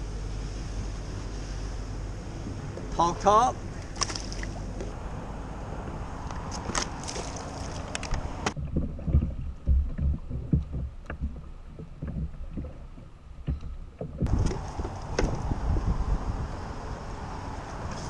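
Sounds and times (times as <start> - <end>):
wind on microphone: 3.6 - 18.0
water slapping a plastic kayak: 3.7 - 5.0, 6.3 - 16.1
low thumps: 8.4 - 16.3.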